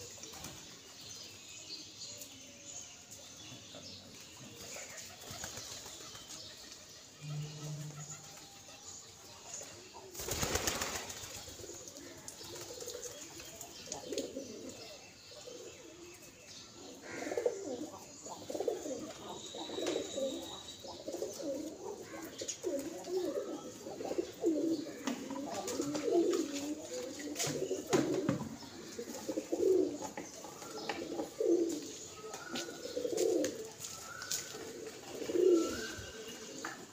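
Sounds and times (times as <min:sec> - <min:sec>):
pigeons cooing: 0:07.0 - 0:08.7, 0:10.1 - 0:15.9, 0:16.8 - 0:36.9
pigeon wings clattering: 0:10.2 - 0:11.4.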